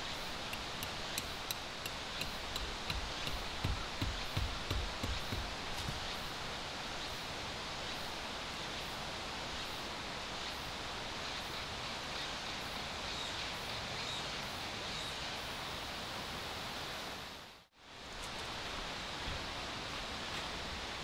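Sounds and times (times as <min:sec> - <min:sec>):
forest ambience hiss: 0:00.0 - 0:21.0.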